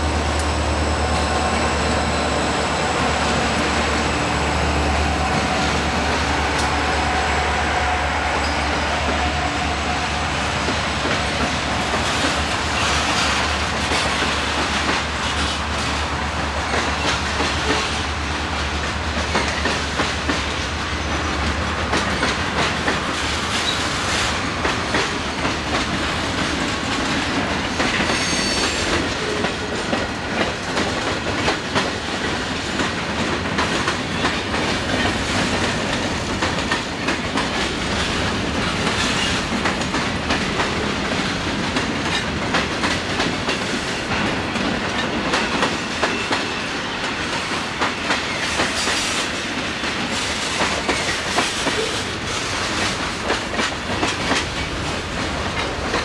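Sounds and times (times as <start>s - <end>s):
diesel locomotive hum: 0.0s - 48.7s
freight train wheels clicking on rails: 0.0s - 56.0s
high wheel squeal: 5.0s - 10.4s, 28.1s - 28.9s.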